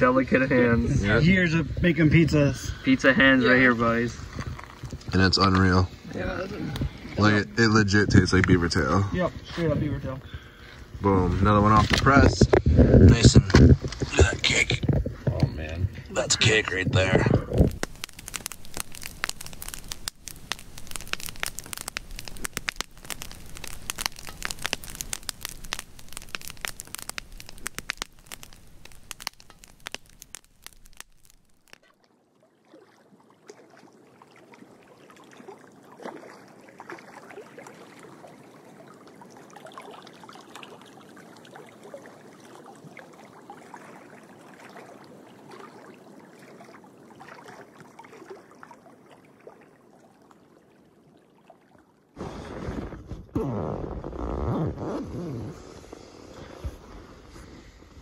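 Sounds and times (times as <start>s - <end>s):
dense crackling: 0.0s - 31.9s.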